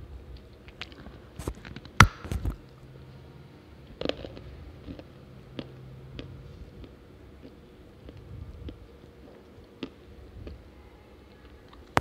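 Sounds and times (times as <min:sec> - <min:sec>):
clay chunk bitten with a crack: 0:00.6 - 0:02.6.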